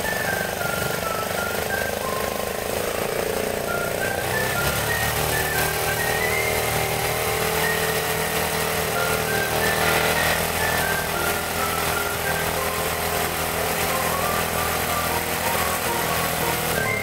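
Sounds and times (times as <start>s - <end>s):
light background music: 0.0s - 17.0s
motorcycle engine idling: 0.0s - 17.0s.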